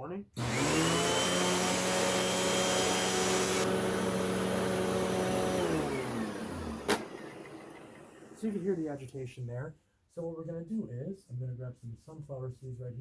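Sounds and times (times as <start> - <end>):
upright vacuum running: 0.4 - 8.8.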